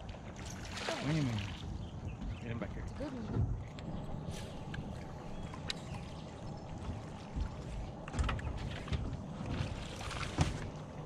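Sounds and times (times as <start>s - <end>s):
low steady rumble: 0.0s - 11.0s
water lapping against boat hull: 0.0s - 11.0s.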